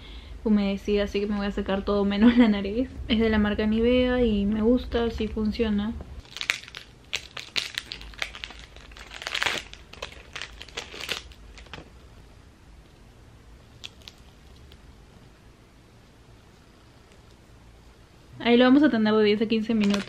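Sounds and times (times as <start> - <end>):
packet crinkling and tearing: 6.2 - 11.9, 13.8 - 14.8, 19.7 - 20.0.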